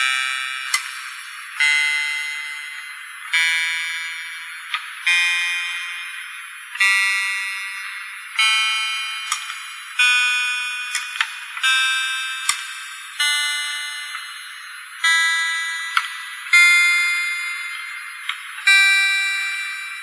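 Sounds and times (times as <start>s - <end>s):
electronic keyboard notes: 0.0s - 20.0s.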